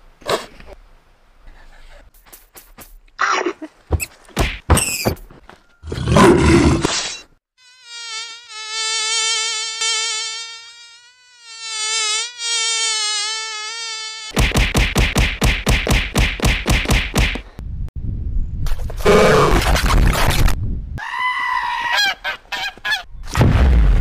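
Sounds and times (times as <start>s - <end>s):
insect-like buzz: 6.8s - 14.4s.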